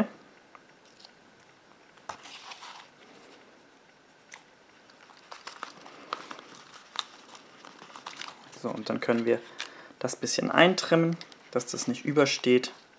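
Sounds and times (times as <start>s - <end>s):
paper rustling: 2.1s - 3.4s, 4.9s - 9.8s.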